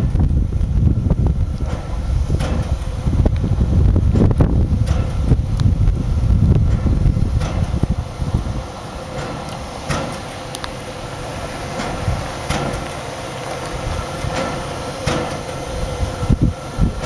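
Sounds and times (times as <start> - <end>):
steady background hum: 0.0 - 17.0
steam locomotive exhaust chuffs: 0.0 - 17.0
wind rumble on microphone: 0.0 - 17.0.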